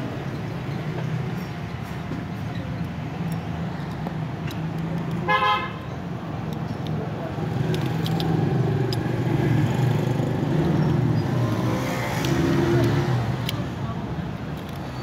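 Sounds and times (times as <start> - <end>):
low traffic rumble: 0.0 - 15.0
vehicle horn toot: 5.3 - 5.8.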